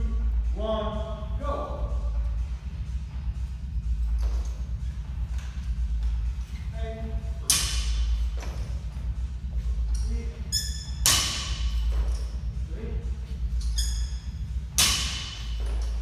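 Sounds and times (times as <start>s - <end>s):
barbell thudding on gym floor: 7.4s - 8.8s, 10.9s - 12.3s, 14.7s - 16.0s.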